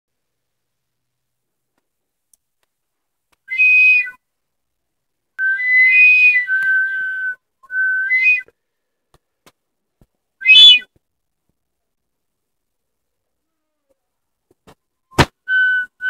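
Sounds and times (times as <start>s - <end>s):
warbling whistle calls: 3.5s - 4.2s, 5.4s - 8.5s, 10.4s - 10.9s, 15.2s - 16.0s.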